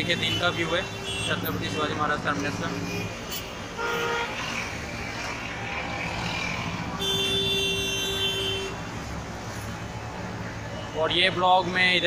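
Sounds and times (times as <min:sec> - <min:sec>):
road traffic: 0:00.0 - 0:12.0
car horn toot: 0:07.0 - 0:08.8
long car horn blast: 0:07.0 - 0:08.8.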